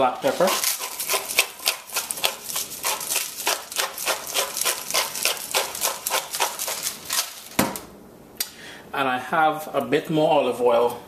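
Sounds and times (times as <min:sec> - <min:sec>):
pepper grinder grinding: 0:00.0 - 0:07.6.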